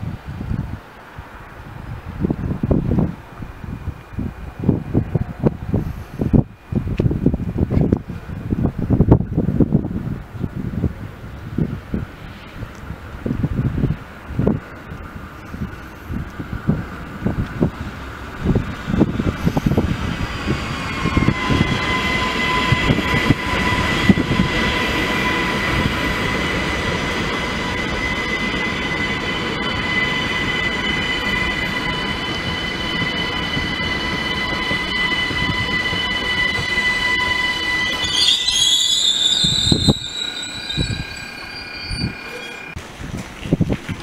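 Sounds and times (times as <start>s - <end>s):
train wheels rumbling on rails: 0.0s - 44.0s
high brake squeal: 15.4s - 16.5s, 18.4s - 42.8s.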